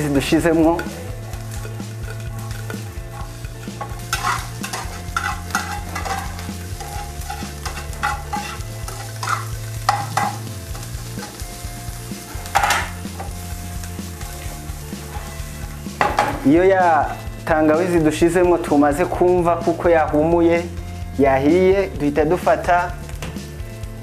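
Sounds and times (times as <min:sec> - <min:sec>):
vegetables sizzling in a pan: 0:00.0 - 0:21.2
spoon scraping a pan: 0:00.8 - 0:11.5, 0:12.1 - 0:16.4.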